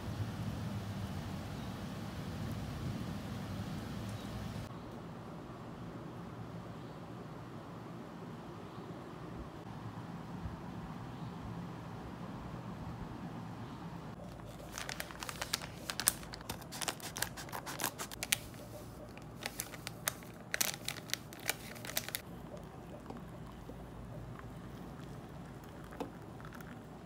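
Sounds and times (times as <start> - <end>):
sachet crinkling: 14.2 - 22.3.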